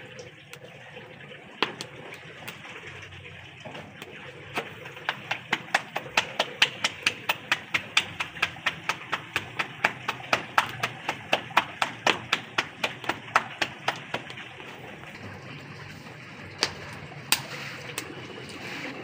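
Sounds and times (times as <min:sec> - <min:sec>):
dough slapped between palms: 0:04.0 - 0:14.8.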